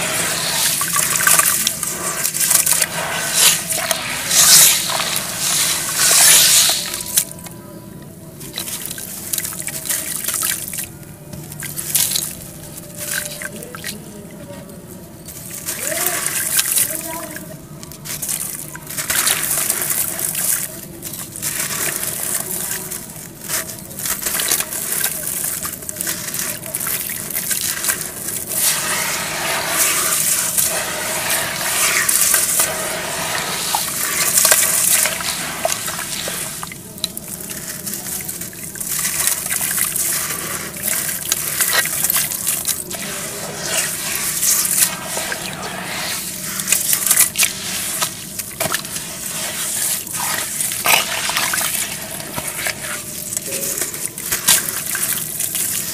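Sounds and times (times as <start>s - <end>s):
hands sloshing muddy water: 0.0s - 7.3s, 18.0s - 55.9s
gritty dirt crackling: 18.0s - 55.9s.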